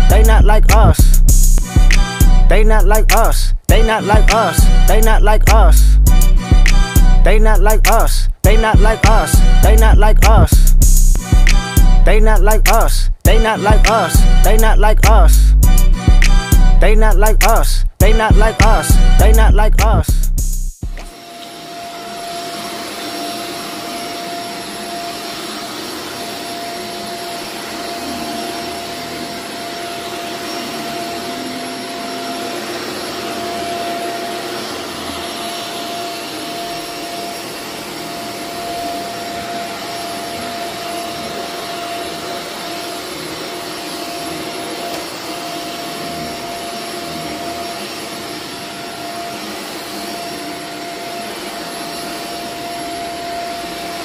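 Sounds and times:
vacuum motor running: 21.0s - 54.0s.

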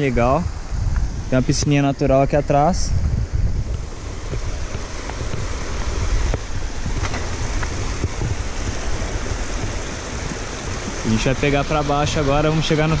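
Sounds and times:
wind rumbling on microphone: 0.0s - 13.0s
creek water rushing over rocks: 3.6s - 13.0s.

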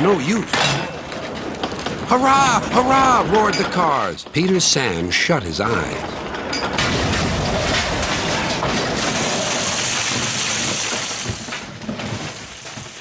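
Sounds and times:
gravel and stones clattering down: 6.1s - 13.0s.

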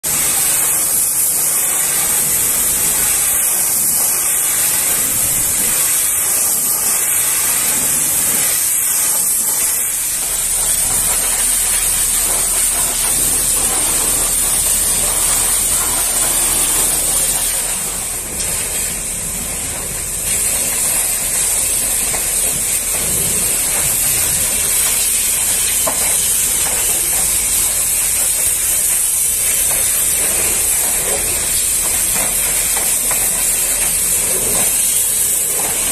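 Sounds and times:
pressure washer spray hissing: 0.0s - 35.9s
low steady hum: 9.4s - 25.7s.

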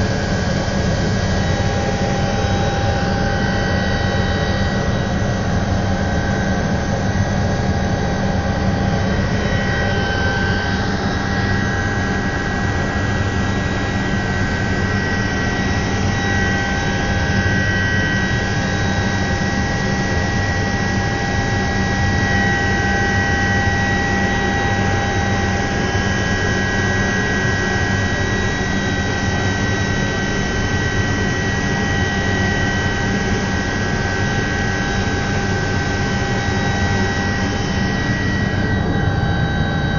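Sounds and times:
low cabin drone: 0.0s - 29.0s, 30.0s - 39.9s
helicopter turbine engine whine: 0.0s - 39.9s.

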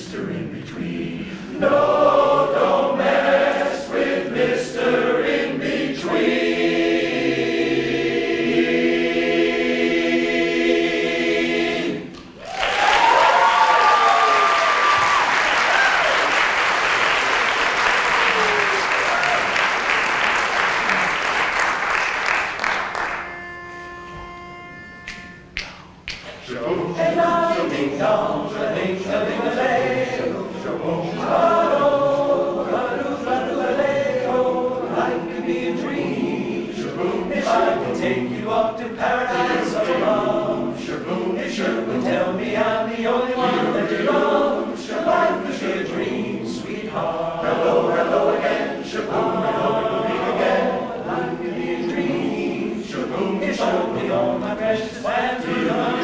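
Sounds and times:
men's chorus singing a cappella: 0.0s - 12.1s, 26.4s - 56.0s.

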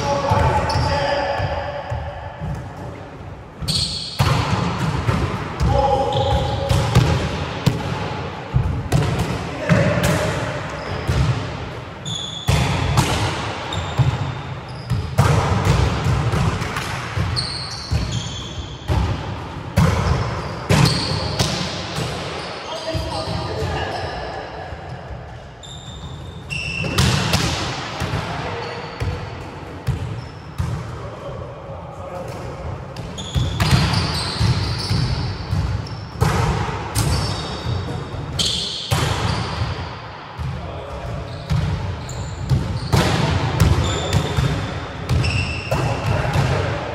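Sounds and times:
players' voices: 0.0s - 3.6s, 4.3s - 11.6s, 20.8s - 25.6s, 27.4s - 34.8s, 40.4s - 41.8s
shoes squeaking on floor: 3.6s - 4.2s, 12.0s - 12.5s, 14.7s - 15.0s, 17.4s - 18.7s, 25.6s - 27.0s, 33.1s - 36.1s, 37.1s - 39.6s, 41.2s - 43.0s, 45.1s - 45.7s
volleyballs slapping and bouncing: 4.1s - 22.4s, 26.8s - 31.1s, 32.2s - 39.8s, 40.4s - 46.9s.

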